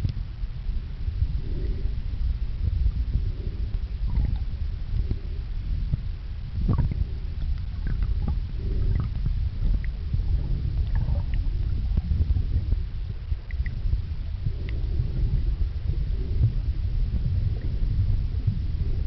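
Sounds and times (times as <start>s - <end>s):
muffled underwater churning: 0.3s - 19.0s
air bubbles popping: 6.7s - 7.0s.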